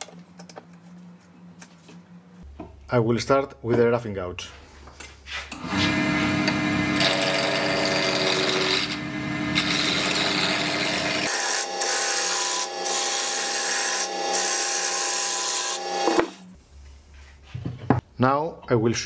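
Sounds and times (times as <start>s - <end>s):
lathe motor hum: 5.7s - 14.4s
gouge scraping wood on lathe: 5.8s - 14.1s.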